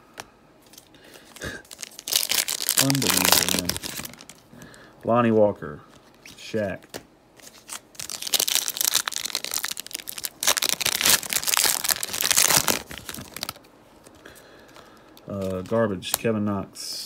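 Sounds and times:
wrapper crinkling and tearing: 1.4 - 4.5, 7.4 - 14.2.

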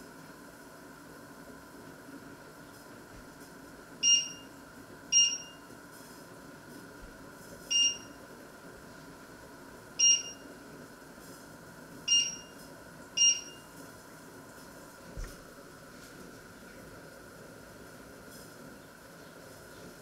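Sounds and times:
faint steady hum: 0.0 - 20.0
hob touch control beeps: 4.0 - 4.5, 5.1 - 5.6, 7.7 - 8.2, 10.0 - 10.4, 12.1 - 12.6, 13.2 - 13.7.

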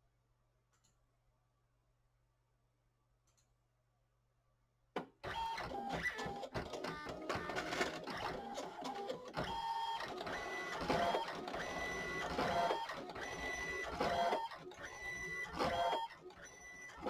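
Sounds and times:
printer head whine: 5.3 - 17.0
printer mechanical rattle: 5.3 - 17.0.

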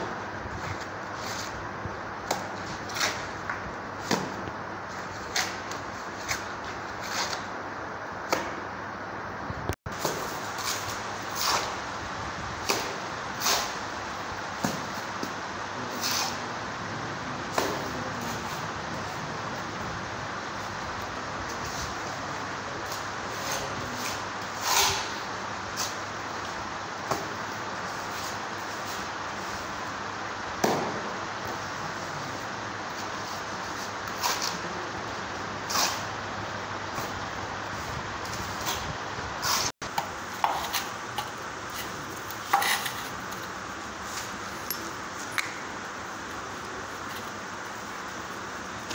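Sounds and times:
steady background noise: 0.0 - 48.9
trowel scraping and slapping mortar: 2.3 - 7.5, 10.0 - 11.8, 22.9 - 26.0, 35.7 - 36.1, 38.3 - 45.5
trowel scraping mortar: 23.3 - 25.2, 35.7 - 36.1, 40.3 - 44.8.

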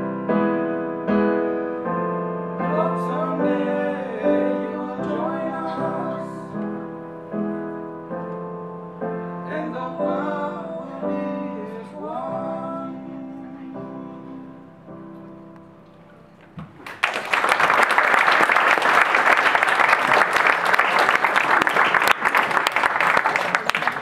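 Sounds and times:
electric keyboard chords: 0.0 - 16.8
person singing: 2.6 - 6.8, 9.4 - 15.2
audience applause: 16.7 - 24.0.

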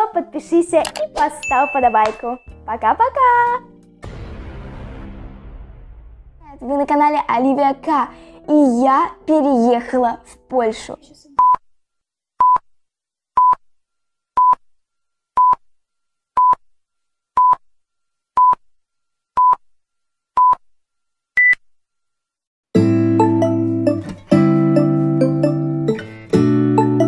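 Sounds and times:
music: 0.0 - 11.2, 22.7 - 27.0
countdown beeps: 1.4 - 2.6, 24.7 - 26.0.

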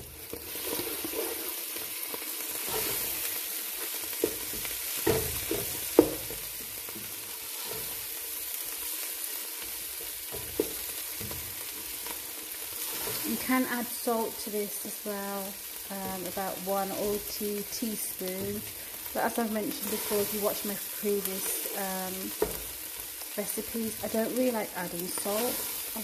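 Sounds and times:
masala sizzling in oil: 0.0 - 26.0
spatula scraping pot: 0.3 - 1.6, 2.6 - 3.3, 12.7 - 13.5
spatula knocking on pan: 4.2 - 6.4.

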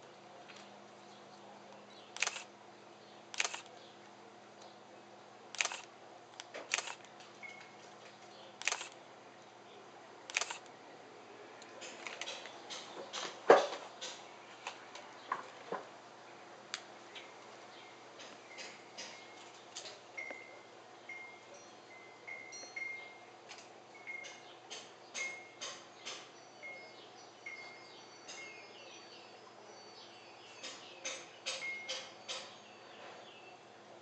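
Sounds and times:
sharp clicks and light knocks: 11.6 - 15.9, 18.2 - 20.4, 23.5 - 26.3.

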